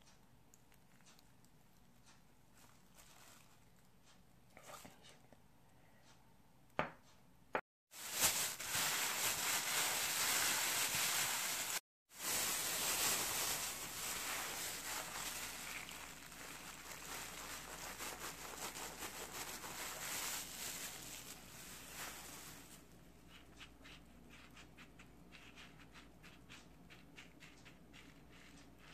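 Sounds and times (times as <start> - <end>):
plastic bag crinkling: 2.6 - 3.8, 7.9 - 22.9.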